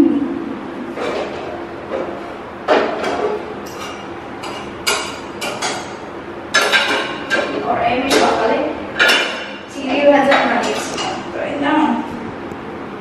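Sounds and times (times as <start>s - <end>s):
metal pans knocking and clinking: 2.7s - 8.4s, 9.0s - 9.5s.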